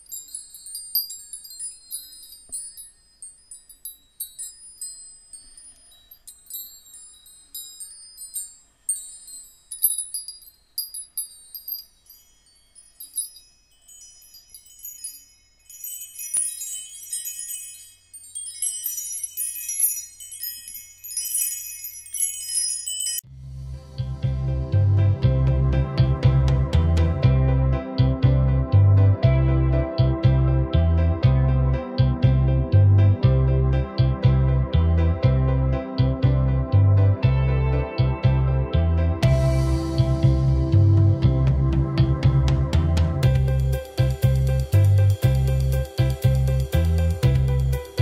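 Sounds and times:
high tinkling chimes: 0.0 - 24.2, 43.2 - 48.0
music with deep bass: 23.3 - 48.0.

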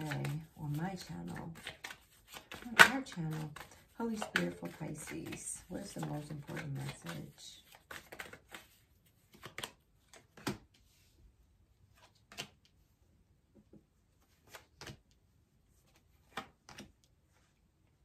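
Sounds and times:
cards slapping on table: 1.5 - 5.4, 6.4 - 10.7, 12.0 - 12.6, 14.4 - 15.1, 16.2 - 17.0.

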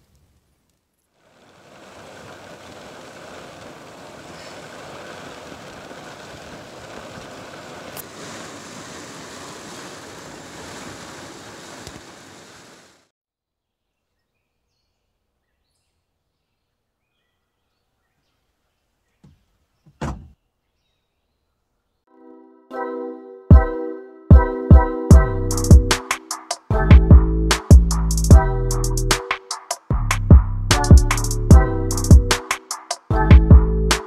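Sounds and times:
heavy rain on car roof: 1.2 - 13.1.

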